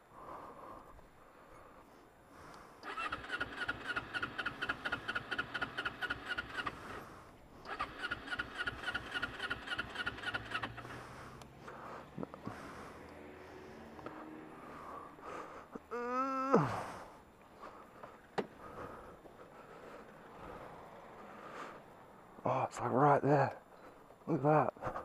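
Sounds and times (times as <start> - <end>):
motorcycle engine cranking: 2.8 - 11.1.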